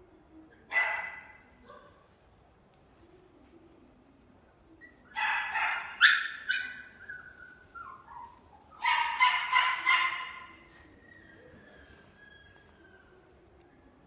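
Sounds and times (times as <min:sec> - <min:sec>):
puppy yipping and barking: 0:04.9 - 0:13.2
puppy whining: 0:06.3 - 0:09.0, 0:10.4 - 0:13.6.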